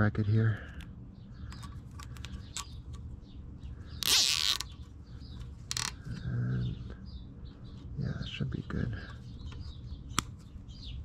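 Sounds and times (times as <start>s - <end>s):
small handling clicks: 1.5s - 3.1s, 4.0s - 6.2s
cable tie ratcheting: 4.0s - 4.8s, 5.6s - 6.0s.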